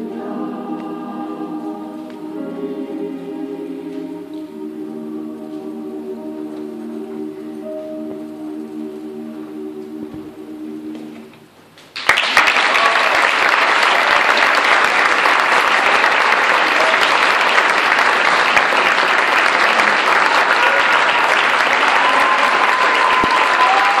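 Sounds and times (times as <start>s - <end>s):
choir chord: 0.0s - 11.5s
audience applauding: 11.9s - 24.0s.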